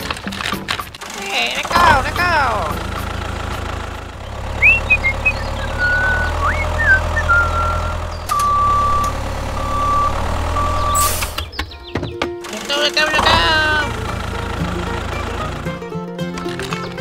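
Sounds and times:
tractor engine chugging: 0:00.0 - 0:17.0
short whistling chirps: 0:04.6 - 0:08.8.

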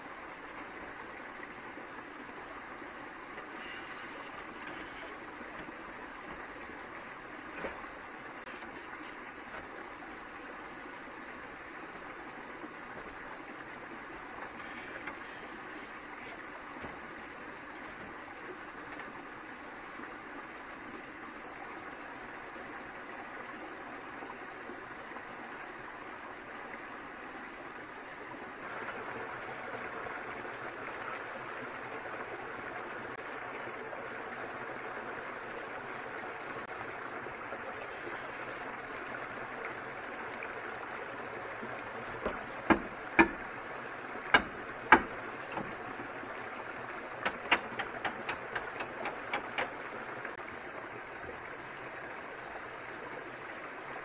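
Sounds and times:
sharp knocks: 0:42.2 - 0:43.4, 0:44.3 - 0:45.7, 0:47.2 - 0:49.7.

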